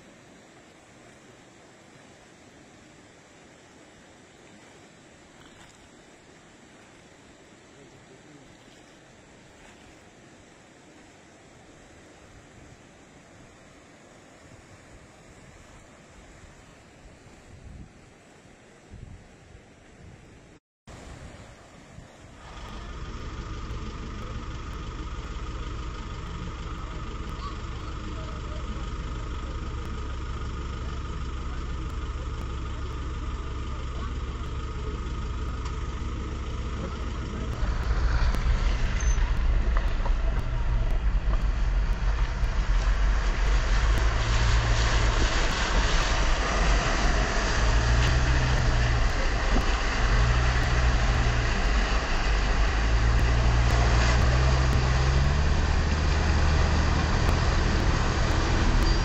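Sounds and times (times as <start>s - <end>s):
vehicle engine rumbling: 20.9s - 59.0s
water rushing under vehicle: 20.9s - 59.0s.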